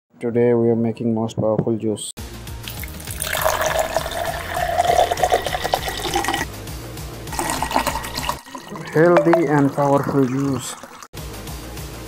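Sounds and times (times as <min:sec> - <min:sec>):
liquid pouring into a cup: 0:02.6 - 0:06.5, 0:07.3 - 0:11.1.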